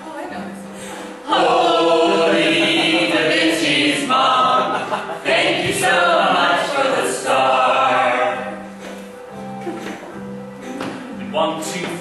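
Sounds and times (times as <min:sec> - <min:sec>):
group singing unaccompanied: 0:01.0 - 0:08.9.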